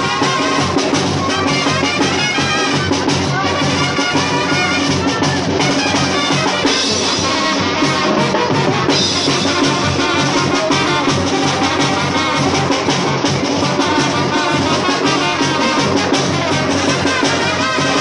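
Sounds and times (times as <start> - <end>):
drum beat: 0.0 - 18.0
trumpets: 0.0 - 18.0
tuba: 0.0 - 18.0.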